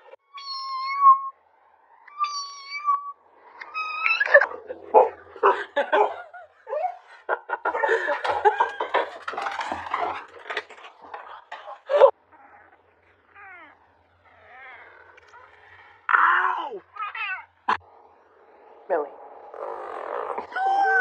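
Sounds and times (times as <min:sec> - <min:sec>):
cat meowing: 0:00.3 - 0:01.4, 0:02.0 - 0:04.6.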